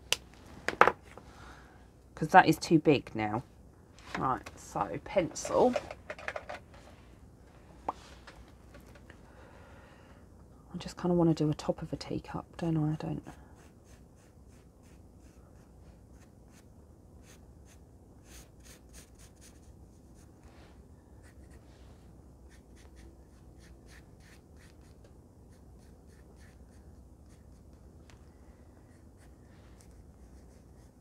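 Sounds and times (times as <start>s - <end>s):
pencil scratching on paper: 13.6s - 16.6s, 17.2s - 20.3s, 22.5s - 27.6s, 28.9s - 31.0s.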